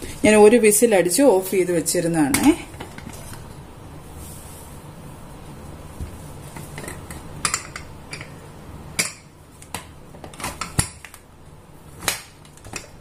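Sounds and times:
metallic clicks and knocks of lid: 6.8s - 8.3s, 9.0s - 11.1s.

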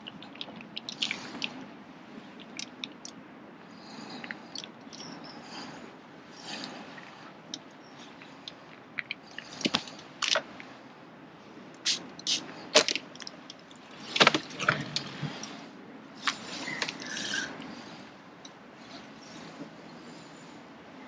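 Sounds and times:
fishing tackle clicks and rustles: 11.8s - 17.2s.

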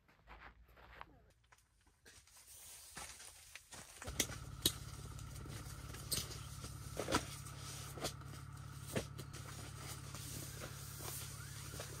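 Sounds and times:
sleeping bags rustling: 2.2s - 12.0s
steady low hum: 4.0s - 12.0s.

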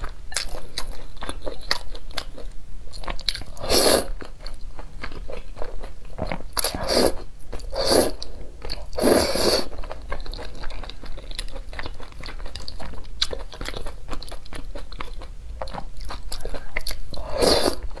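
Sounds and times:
wet chewing clicks: 9.8s - 17.2s.

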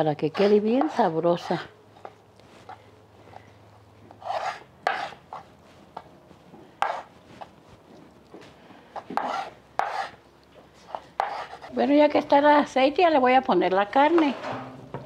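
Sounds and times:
knife scraping on cutting board: 0.2s - 3.4s, 4.1s - 6.1s, 6.8s - 7.5s, 9.0s - 10.2s, 10.8s - 11.8s.

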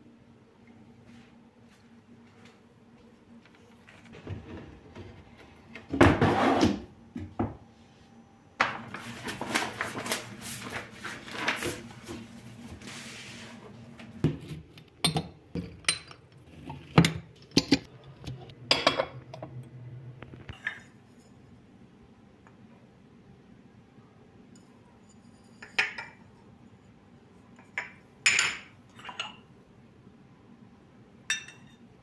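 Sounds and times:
scraping on cabinet shelf: 4.1s - 6.9s
porcelain cups clinking: 15.0s - 16.3s, 18.7s - 19.4s, 25.5s - 26.2s, 27.6s - 29.4s, 31.3s - 31.8s.

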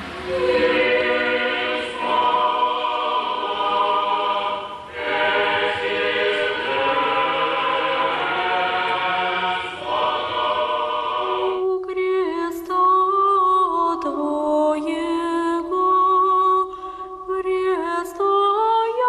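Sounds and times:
choir singing unaccompanied chant: 0.2s - 12.6s.

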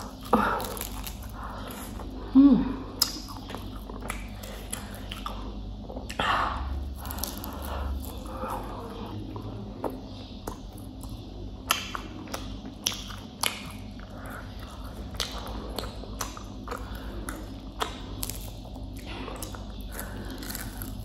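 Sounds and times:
chewing fried chicken: 0.0s - 2.2s, 2.8s - 21.0s
crispy coating crackling: 0.0s - 21.0s.

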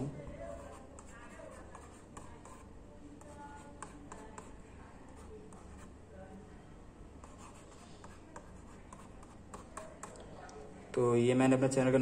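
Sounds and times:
stylus scratching on screen: 0.5s - 6.0s, 7.2s - 10.2s.

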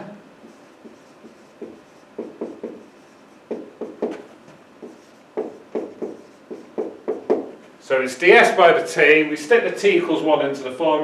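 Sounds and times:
marker writing on whiteboard: 0.4s - 7.6s.

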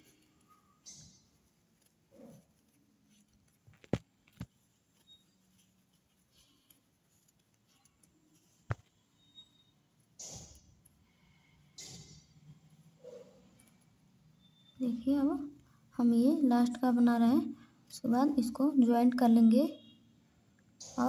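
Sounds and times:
soft yarn rustles: 0.0s - 11.3s
crochet hook clicks: 10.2s - 10.7s.

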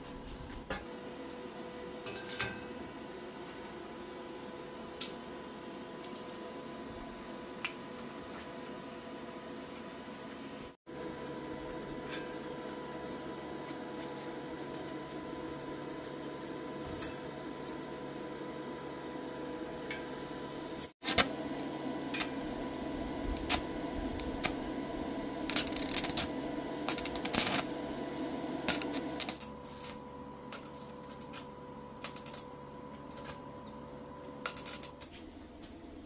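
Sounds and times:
steady hum: 6.7s - 36.0s
welding arc crackling: 19.6s - 33.4s, 34.4s - 35.1s.

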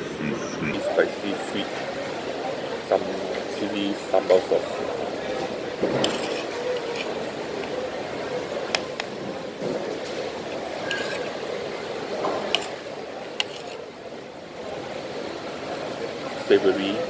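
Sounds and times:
background crowd din: 0.0s - 17.0s
metal spoon scraping plate: 6.0s - 7.2s, 10.5s - 11.4s, 12.5s - 12.8s, 13.4s - 13.8s.

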